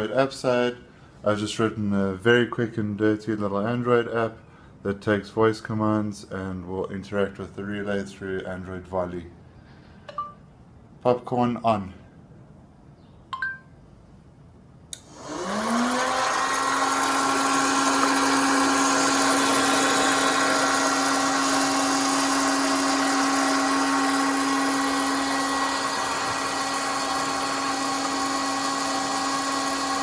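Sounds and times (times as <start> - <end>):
popcorn machine motor hum: 15.0 - 30.0.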